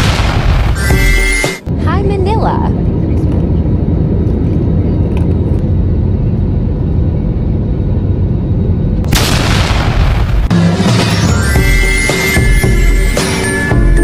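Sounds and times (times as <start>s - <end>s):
airliner cabin engine rumble: 1.7s - 9.1s.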